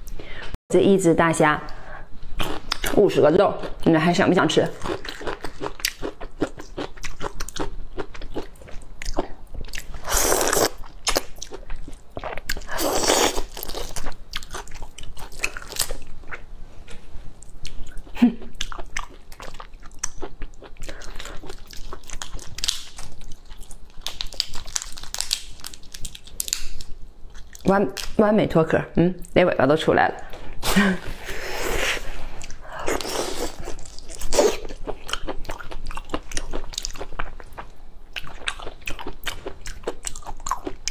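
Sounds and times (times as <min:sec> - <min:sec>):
prawn shell cracking and peeling: 0:24.0 - 0:26.9.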